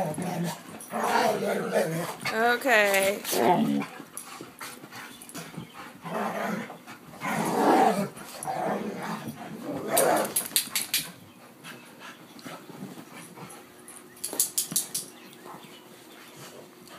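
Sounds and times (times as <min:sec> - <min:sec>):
dogs growling in play: 0:00.0 - 0:02.4, 0:03.2 - 0:11.2.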